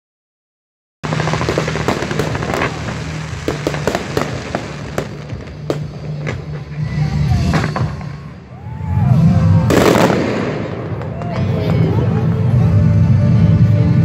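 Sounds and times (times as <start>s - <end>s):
fireworks bangs and crackles: 1.0s - 14.0s.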